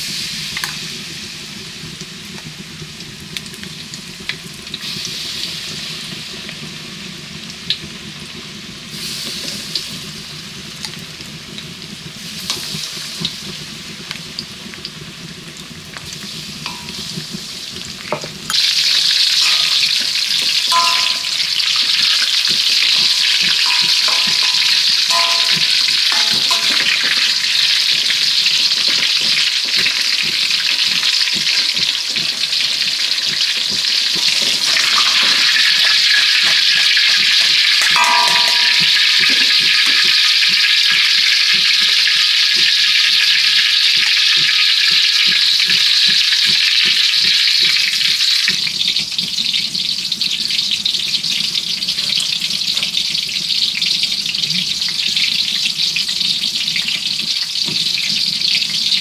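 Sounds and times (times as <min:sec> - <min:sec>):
deep-frying sizzle in oil: 0:00.0 - 0:59.0
metal spatula clinking wok: 0:19.4 - 0:21.6, 0:22.8 - 0:27.5, 0:37.8 - 0:40.1.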